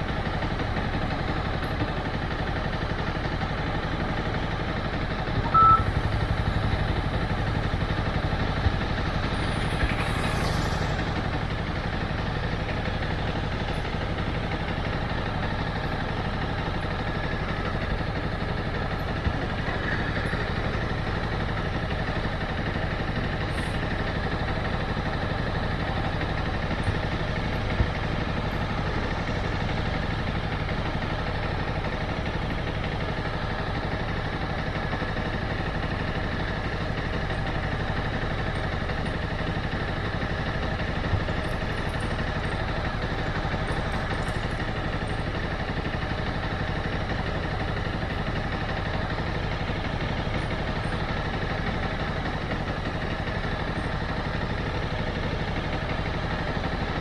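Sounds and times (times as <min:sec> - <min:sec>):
motorcycle engine running: 0:00.0 - 0:57.0
short loud beep: 0:05.4 - 0:06.0.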